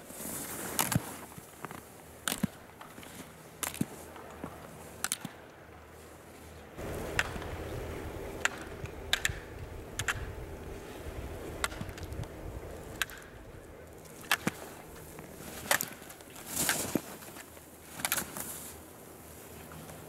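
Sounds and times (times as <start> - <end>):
steady hiss: 5.9 - 20.0.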